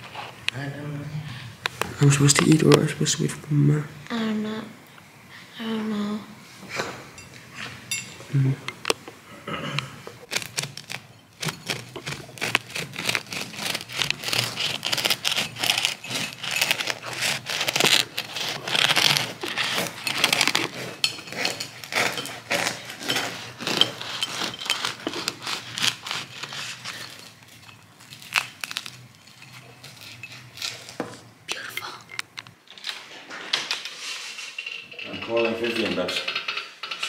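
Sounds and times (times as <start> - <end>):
bread knife sawing crusty bread: 10.4 - 27.3.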